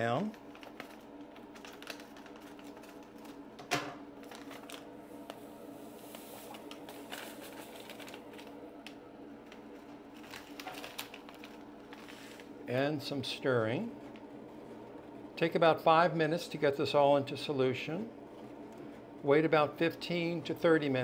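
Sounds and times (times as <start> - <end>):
fume hood fan hum: 0.0 - 21.0
powder pouch crinkling: 0.2 - 3.5, 4.2 - 5.4, 6.1 - 12.5.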